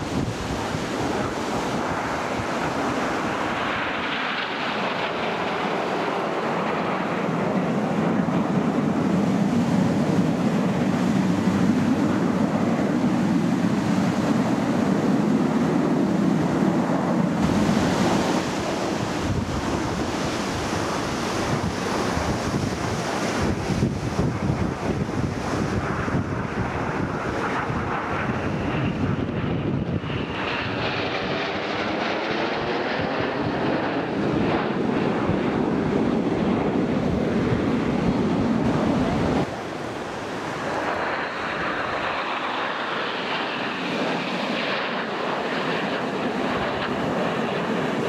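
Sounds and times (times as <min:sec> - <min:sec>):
jet roar: 0:00.0 - 0:48.0
wind noise on microphone: 0:00.0 - 0:48.0.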